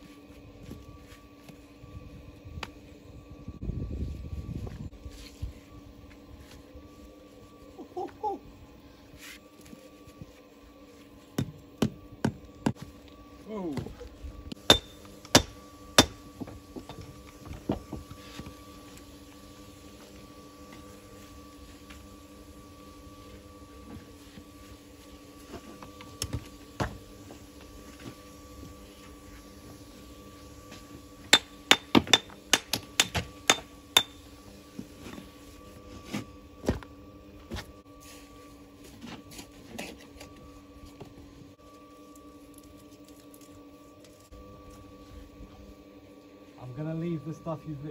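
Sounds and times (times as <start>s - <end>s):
metal tool striking stone: 14.7s - 16.2s, 31.3s - 34.2s.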